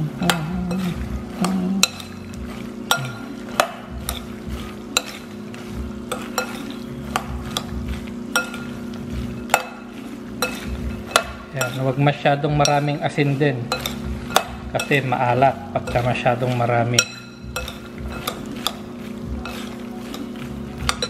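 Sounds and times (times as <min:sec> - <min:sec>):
spoon clicking against glass: 0:00.3 - 0:04.3, 0:13.7 - 0:15.0, 0:16.9 - 0:18.8, 0:19.4 - 0:21.0.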